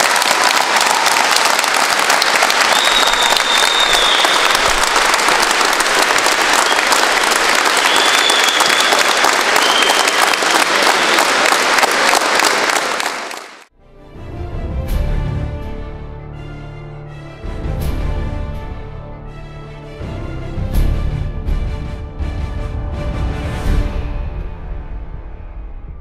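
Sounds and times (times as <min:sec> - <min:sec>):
crowd clapping: 0:00.0 - 0:13.7
short high whistles: 0:02.6 - 0:04.8, 0:07.7 - 0:11.2.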